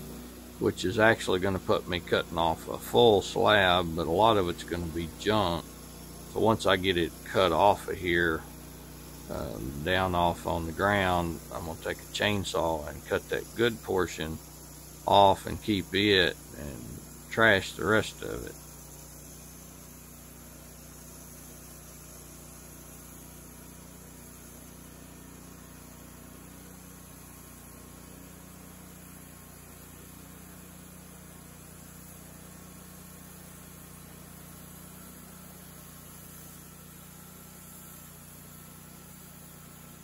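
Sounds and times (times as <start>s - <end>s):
band sawmill sawing a log: 0.0s - 30.7s.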